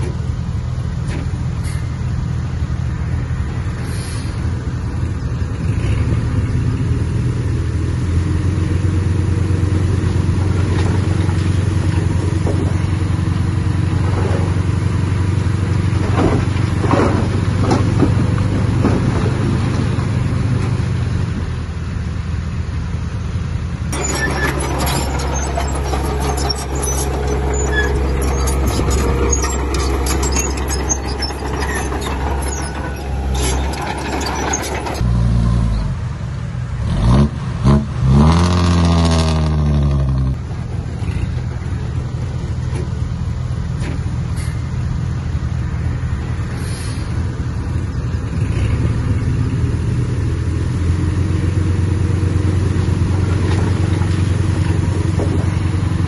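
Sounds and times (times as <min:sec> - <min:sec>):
diesel engines running: 0:00.0 - 0:56.0
engine revving: 0:05.5 - 0:12.7, 0:36.8 - 0:41.6, 0:48.2 - 0:55.6
metal clanks: 0:23.9 - 0:35.1.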